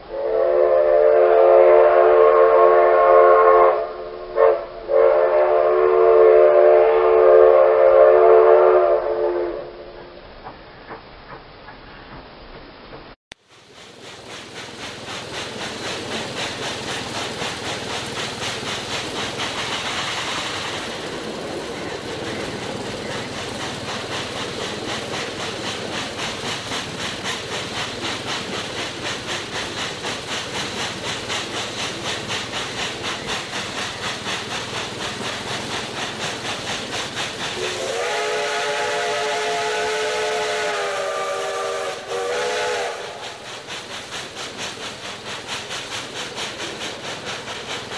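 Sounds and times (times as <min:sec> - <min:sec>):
steam hissing: 0:00.0 - 0:47.9
steam locomotive exhaust chuffs: 0:00.0 - 0:47.9
steam whistle blast: 0:00.1 - 0:10.2, 0:37.6 - 0:43.4.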